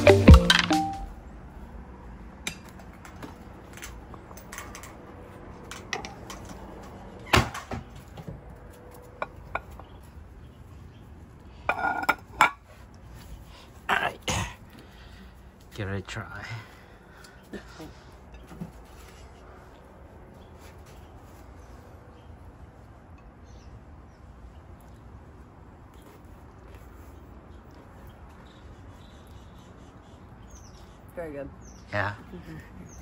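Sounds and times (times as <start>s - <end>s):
dishes clinking and knocking: 11.7s - 12.6s.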